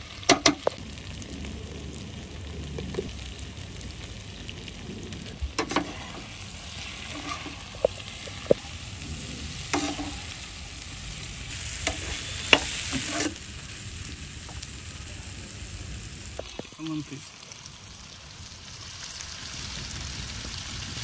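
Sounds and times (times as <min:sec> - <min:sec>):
chicken sizzling in a pan: 0:00.0 - 0:21.0
spatula scraping and stirring: 0:05.2 - 0:13.5.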